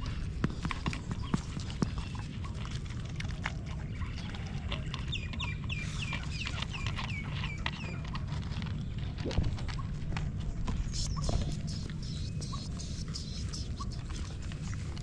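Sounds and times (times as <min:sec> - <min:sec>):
bird chirping: 0:03.8 - 0:08.1, 0:10.7 - 0:15.0.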